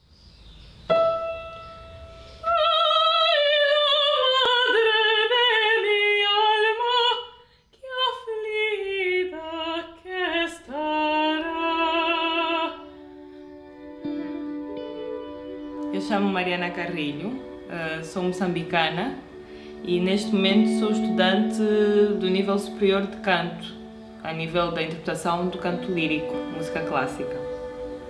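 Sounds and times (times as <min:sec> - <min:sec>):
piano note: 0:00.9 - 0:02.6
woman singing opera: 0:02.4 - 0:28.0.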